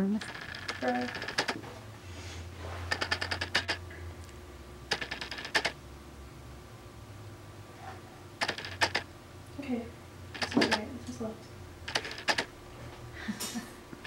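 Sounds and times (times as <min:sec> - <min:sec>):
sewing machine stitching: 0:11.9 - 0:12.5.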